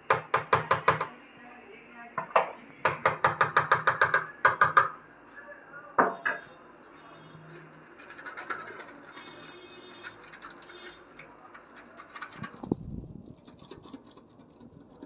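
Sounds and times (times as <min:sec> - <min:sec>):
metal spoon tapping steel bowl: 0:00.1 - 0:01.2, 0:02.9 - 0:05.0.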